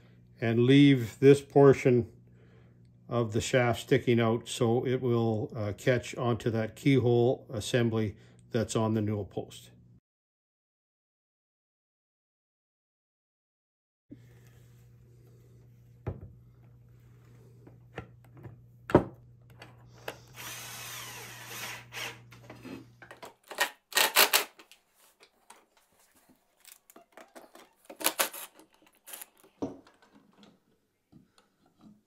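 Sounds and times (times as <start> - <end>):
cordless drill driving into wood: 20.1 - 22.5, 23.5 - 24.6.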